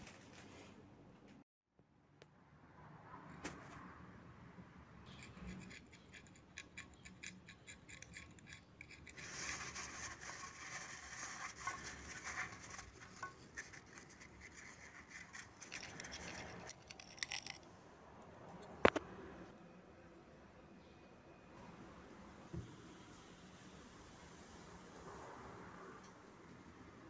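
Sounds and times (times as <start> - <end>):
towel rubbing on metal: 9.2 - 15.8.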